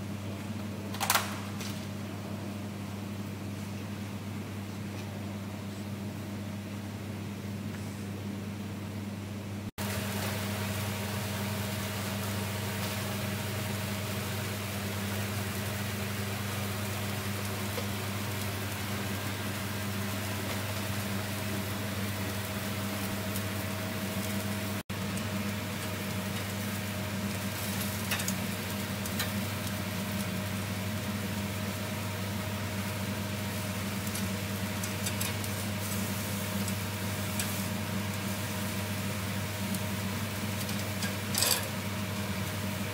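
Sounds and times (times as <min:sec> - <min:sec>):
steady machine hum: 0:00.0 - 0:42.9
food sizzling on a grill: 0:09.8 - 0:42.9.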